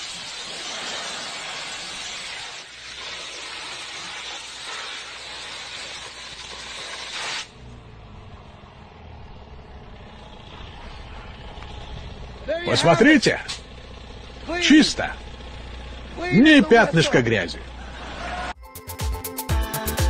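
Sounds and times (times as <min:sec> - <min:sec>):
pressure washer jet hissing: 0:00.0 - 0:07.7.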